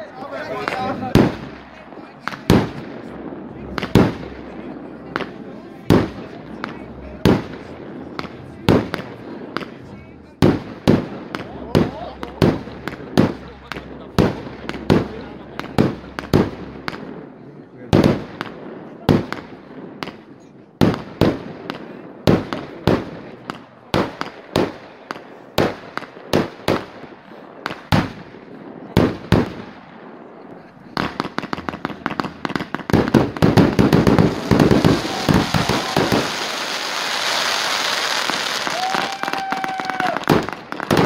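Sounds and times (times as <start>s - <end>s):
firework bangs: 0.0s - 41.0s
firework hissing crackle: 31.0s - 41.0s.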